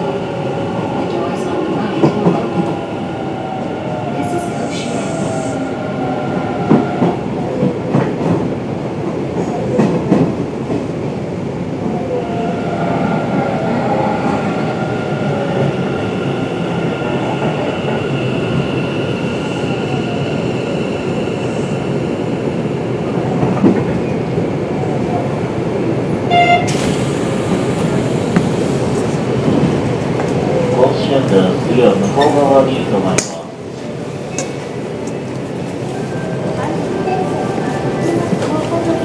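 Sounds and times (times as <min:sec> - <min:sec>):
train wheels rumbling: 0:12.5 - 0:39.0.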